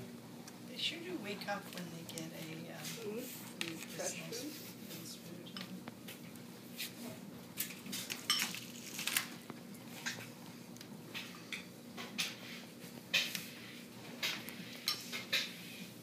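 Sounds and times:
rabbits crunching lettuce: 0:07.6 - 0:09.4.

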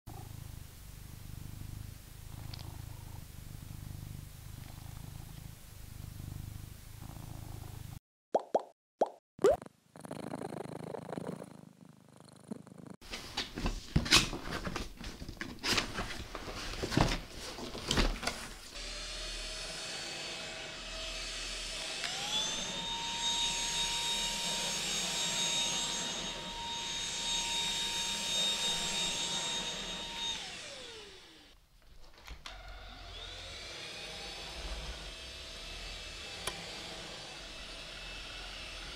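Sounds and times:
stick vacuum motor whining: 0:18.8 - 0:31.6.

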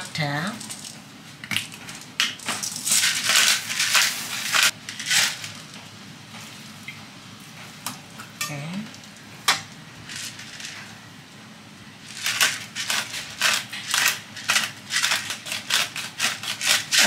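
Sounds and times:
pepper mill grinding: 0:00.5 - 0:01.0, 0:01.6 - 0:05.7, 0:10.0 - 0:10.8, 0:12.0 - 0:17.0.

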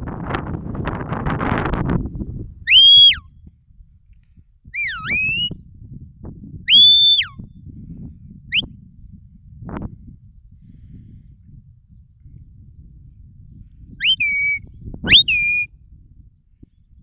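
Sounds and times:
wind rumble on microphone: 0:00.0 - 0:17.0
shepherd's whistle: 0:02.7 - 0:03.3, 0:04.8 - 0:05.6, 0:06.7 - 0:07.4, 0:08.5 - 0:08.7, 0:14.0 - 0:15.7.

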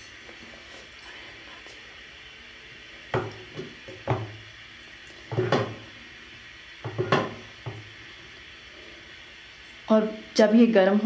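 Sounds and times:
glass lid knocking on metal pot: 0:06.8 - 0:07.4.

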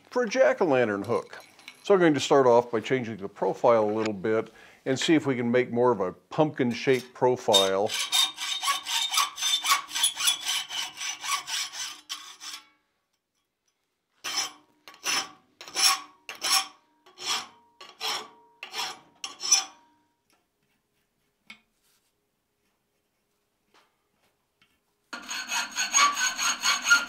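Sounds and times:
hacksaw cutting steel: 0:07.5 - 0:12.7, 0:14.2 - 0:19.8, 0:25.2 - 0:27.0
hand file rasping on metal: 0:07.5 - 0:12.7, 0:14.2 - 0:19.8, 0:25.2 - 0:27.0.

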